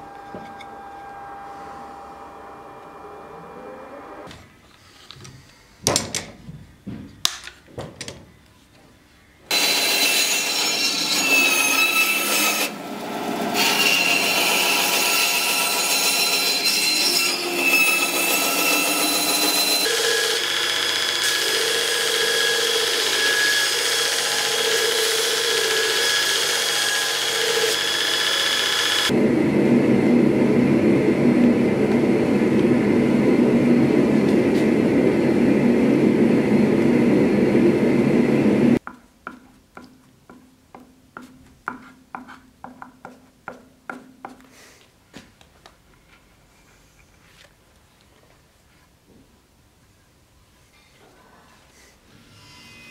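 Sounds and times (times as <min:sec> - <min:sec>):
grinding machine noise: 0:00.0 - 0:04.3, 0:19.8 - 0:38.8
bandsaw cutting wood: 0:09.5 - 0:29.2.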